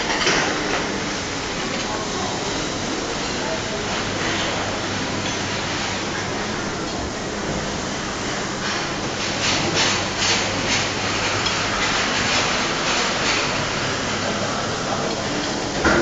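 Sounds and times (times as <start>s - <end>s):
plates and utensils clattering: 0.0s - 0.8s
dining room hubbub: 0.0s - 16.0s.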